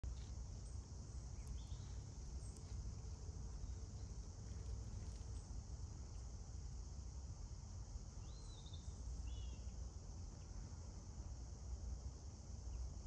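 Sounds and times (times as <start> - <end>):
high drone of insects: 0.0 - 13.0.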